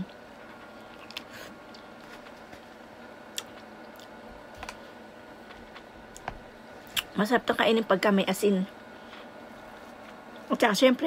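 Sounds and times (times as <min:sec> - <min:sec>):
chewing pineapple: 0:00.4 - 0:02.7, 0:03.3 - 0:06.2.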